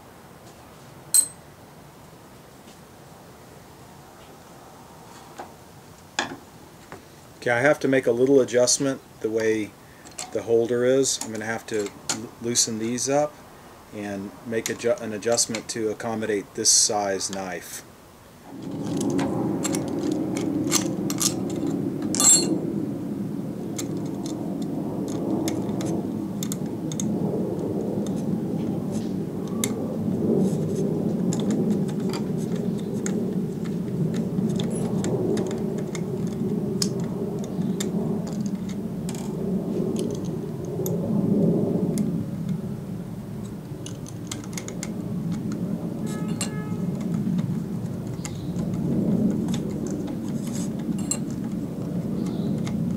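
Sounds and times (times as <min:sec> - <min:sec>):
metal parts clicking and clinking: 0:01.2 - 0:01.4, 0:10.0 - 0:10.4, 0:18.6 - 0:22.6, 0:43.8 - 0:48.7, 0:49.5 - 0:51.6
low steady rumble: 0:18.1 - 0:52.9.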